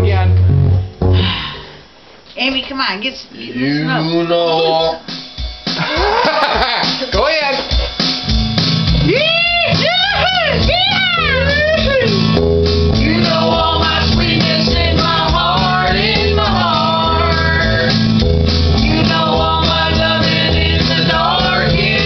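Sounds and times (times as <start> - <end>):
rock guitar and beat: 0.0 - 1.5, 5.0 - 22.0
voices singing together: 13.0 - 22.0.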